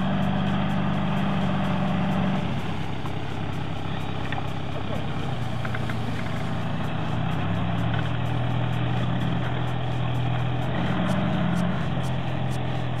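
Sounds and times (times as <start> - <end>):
small tractor engines under load: 0.0 - 13.0.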